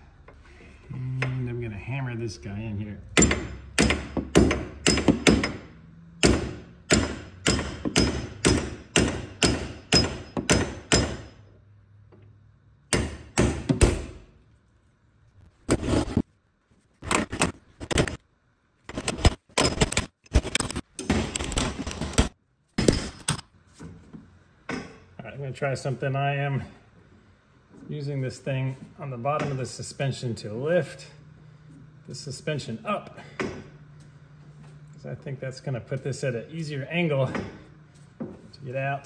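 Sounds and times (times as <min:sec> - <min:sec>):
hammer striking metal: 0:03.1 - 0:11.5.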